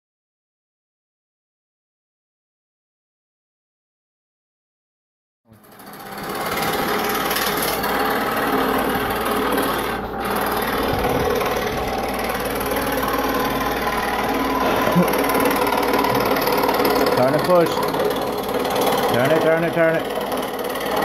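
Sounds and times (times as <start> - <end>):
scroll saw cutting wood: 5.5 - 21.0.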